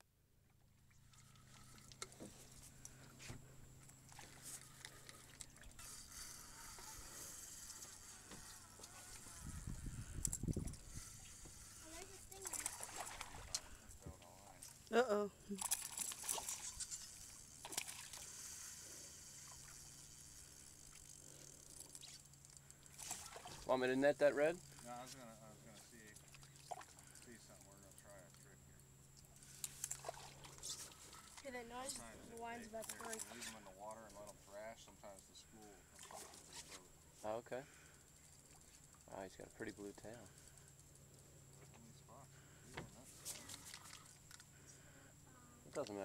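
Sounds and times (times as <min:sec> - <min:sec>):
faint low hum: 0:00.2 - 0:46.0
fishing reel clicking: 0:04.5 - 0:13.8, 0:15.6 - 0:23.4, 0:24.6 - 0:25.1, 0:29.3 - 0:30.0.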